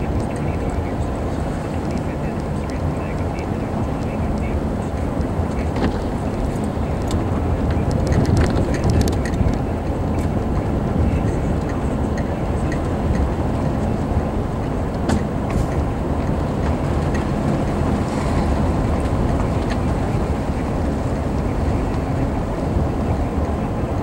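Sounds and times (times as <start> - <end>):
car engine and tyres rumbling: 0.0 - 24.0.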